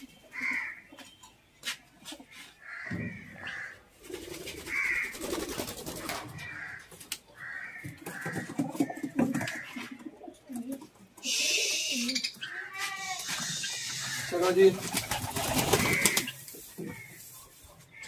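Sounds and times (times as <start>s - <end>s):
pigeons cooing: 2.0s - 18.0s
short bird calls: 11.2s - 14.4s.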